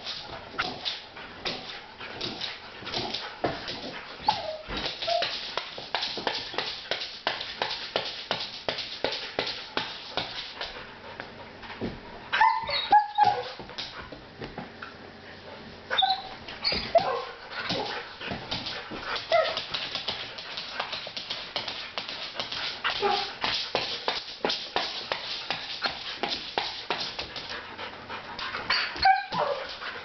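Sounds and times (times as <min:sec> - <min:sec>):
dog claws clicking on wood floor: 0:00.0 - 0:10.8, 0:16.7 - 0:27.6
dog whimpers and yips: 0:04.2 - 0:05.4, 0:12.3 - 0:13.6, 0:15.9 - 0:17.2, 0:19.3 - 0:19.6, 0:28.7 - 0:29.6.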